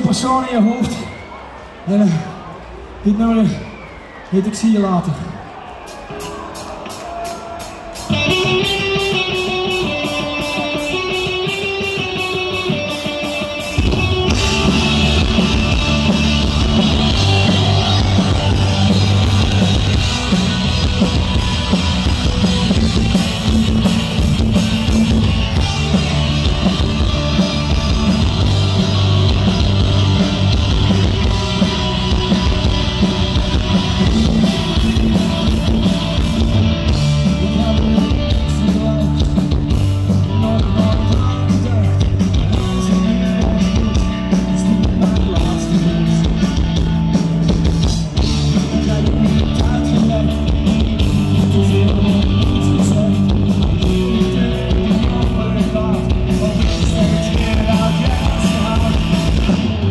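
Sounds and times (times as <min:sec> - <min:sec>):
punk rock band playing live: 0:05.8 - 0:59.9
lone guitar picking: 0:08.1 - 0:47.5.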